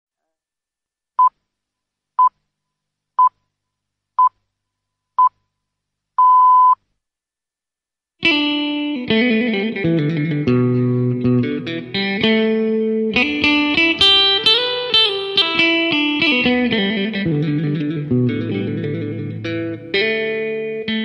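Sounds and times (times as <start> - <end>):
electric guitar music: 8.2 - 21.0.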